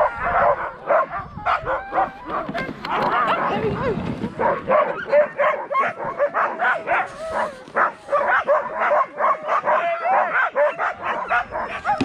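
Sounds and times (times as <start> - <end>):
sled dogs barking and yelping: 0.0 - 12.0
dogs whining: 10.6 - 12.0.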